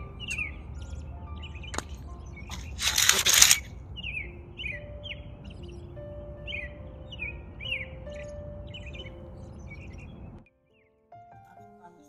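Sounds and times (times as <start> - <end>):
birds chirping: 0.0 - 11.3
soft background music: 0.0 - 12.0
loud rustling burst: 2.5 - 3.7
single click: 2.5 - 3.7.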